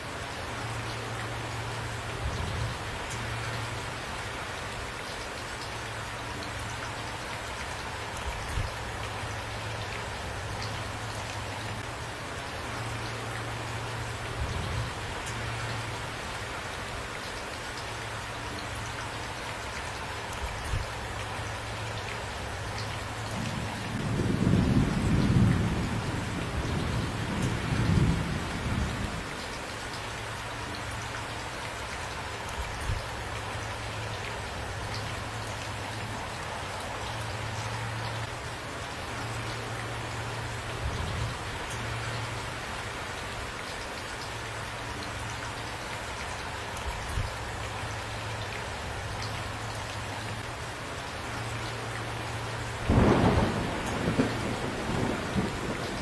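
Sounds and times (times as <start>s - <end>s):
steady rain: 0.0s - 56.0s
thunder rumbling: 23.4s - 29.3s, 52.8s - 56.0s.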